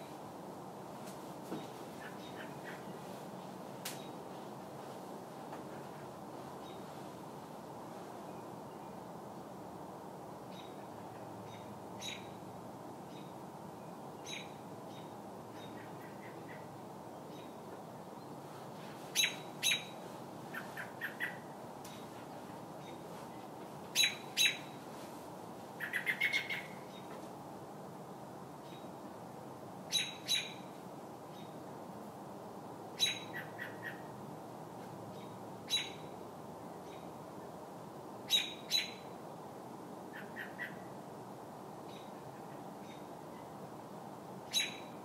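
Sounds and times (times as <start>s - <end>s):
steady low hiss: 0.0s - 45.0s
robin distress calls: 19.1s - 21.5s, 24.0s - 24.8s, 25.8s - 27.0s, 29.9s - 30.6s, 33.0s - 34.1s, 35.2s - 36.1s, 38.3s - 39.1s, 44.5s - 44.9s.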